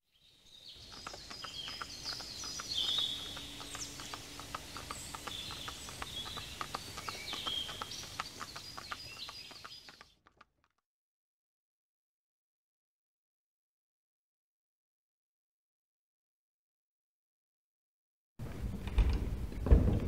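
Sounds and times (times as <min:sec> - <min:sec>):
birds chirping and singing: 0:00.2 - 0:10.2.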